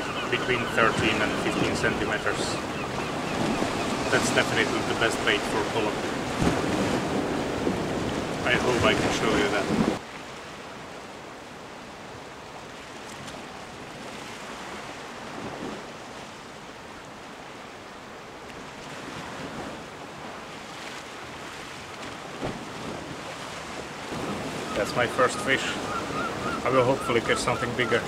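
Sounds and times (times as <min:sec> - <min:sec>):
wind on microphone: 0:00.0 - 0:10.0
sea waves washing against rocks: 0:00.0 - 0:11.0, 0:12.0 - 0:28.0.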